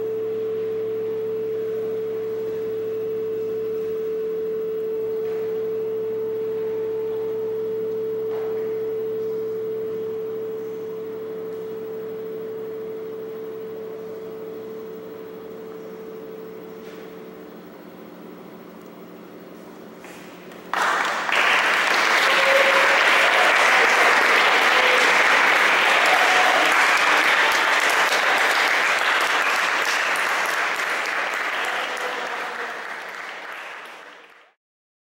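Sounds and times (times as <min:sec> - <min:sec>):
ensemble drone of held tones: 0:00.0 - 0:34.3
audience applause: 0:20.7 - 0:34.6.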